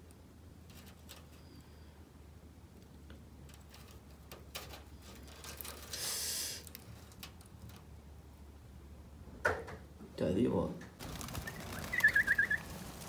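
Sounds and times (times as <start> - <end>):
short hiss: 5.9 - 6.8
dry straw crackling: 11.0 - 13.0.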